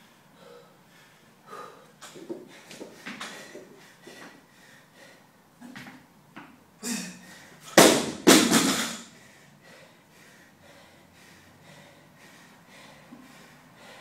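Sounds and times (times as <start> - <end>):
barbell crashing on floor: 7.8 - 9.1.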